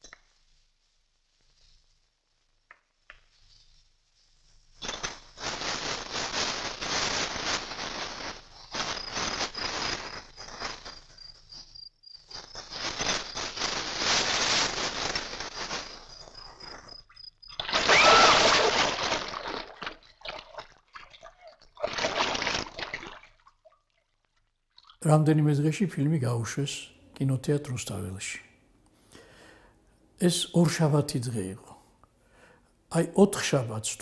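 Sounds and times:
hay rustling and crackling: 0:04.2 - 0:11.2, 0:12.5 - 0:16.8.

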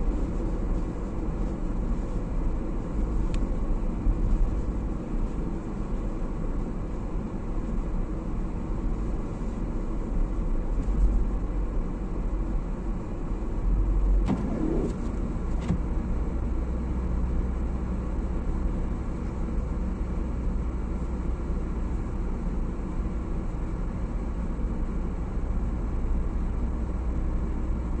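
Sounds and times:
car engine and tyres rumbling: 0:00.0 - 0:28.0
short pitch glide: 0:14.3 - 0:15.3.

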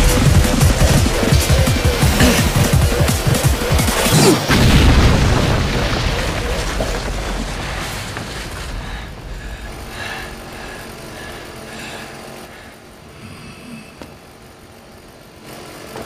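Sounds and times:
heavy boom with rumbling: 0:04.5 - 0:10.9.

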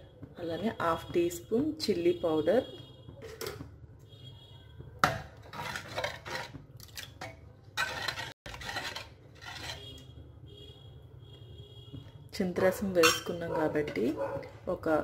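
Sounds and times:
metal ladle scraping pot: 0:05.0 - 0:10.3, 0:12.9 - 0:14.2.

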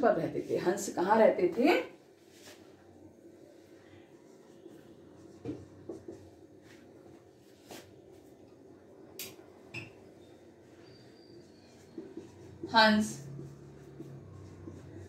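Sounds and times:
marker scratching on a board: 0:05.2 - 0:06.4, 0:10.9 - 0:15.0.

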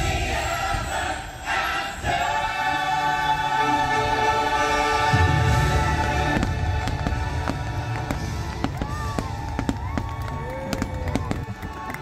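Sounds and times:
soundtrack music: 0:00.0 - 0:10.0
fireworks booming: 0:05.1 - 0:11.7
fireworks bangs and crackles: 0:05.1 - 0:12.0.

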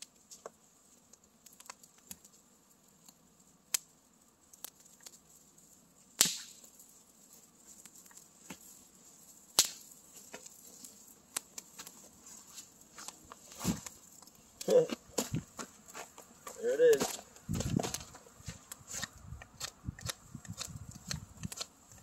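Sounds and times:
campfire crackling: 0:00.0 - 0:22.0
loud sharp pops: 0:06.2 - 0:06.7, 0:09.6 - 0:09.9.

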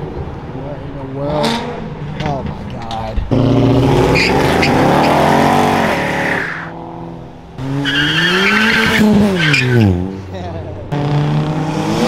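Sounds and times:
car engine revving: 0:03.2 - 0:12.0
tires squealing: 0:03.3 - 0:06.7, 0:07.6 - 0:10.1.

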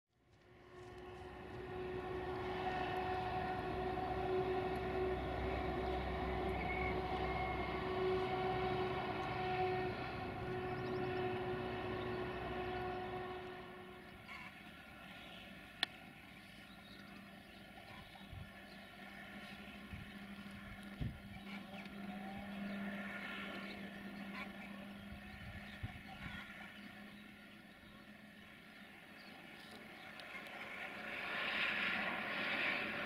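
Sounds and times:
moving train rumble: 0:00.2 - 0:33.0
train horn: 0:00.5 - 0:15.1.

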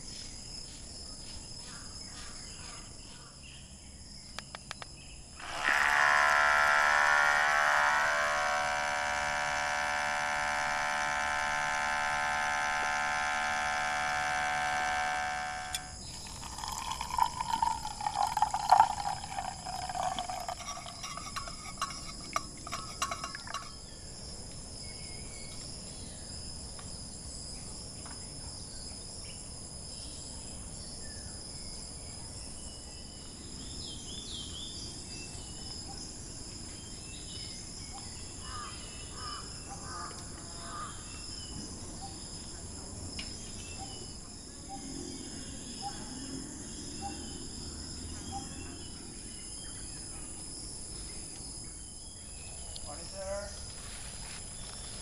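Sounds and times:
insect chorus: 0:00.0 - 0:55.0
espresso maker pump buzzing: 0:05.4 - 0:23.8
liquid sputtering and pouring: 0:15.7 - 0:23.8.

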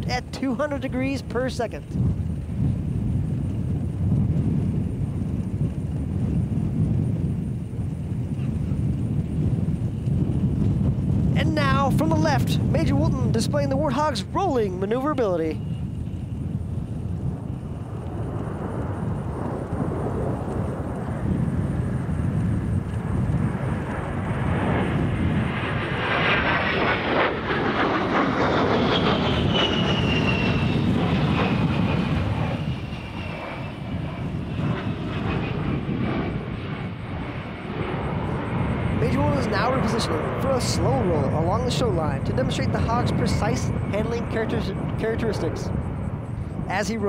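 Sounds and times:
jet aircraft passing: 0:00.0 - 0:47.0
high engine whine: 0:11.3 - 0:47.0.

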